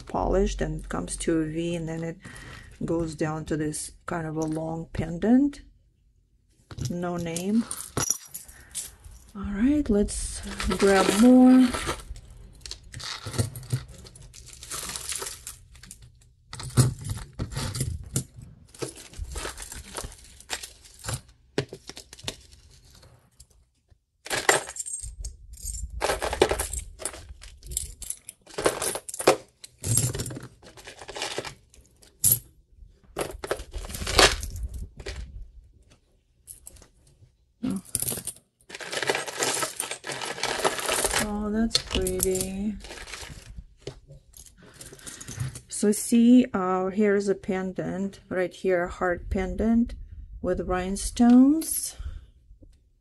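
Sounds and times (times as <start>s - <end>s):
metal jewelry clinking and jangling: 6.7s - 21.3s, 24.3s - 32.5s, 37.6s - 43.5s.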